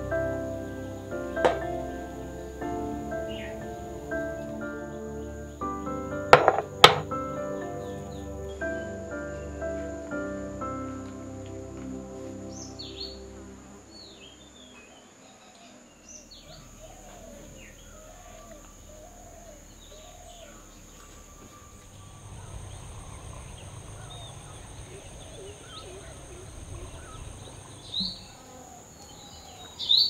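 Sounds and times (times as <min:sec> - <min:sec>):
birds chirping: 0:00.0 - 0:11.4, 0:12.4 - 0:30.0
low background rumble: 0:00.0 - 0:14.7, 0:16.1 - 0:28.8
repeated arched bird calls: 0:14.0 - 0:30.0
high-pitched insect drone: 0:16.5 - 0:28.8.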